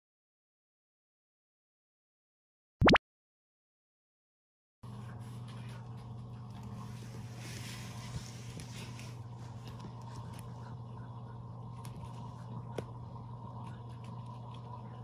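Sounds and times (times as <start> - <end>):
steady low hum: 4.8 - 15.0.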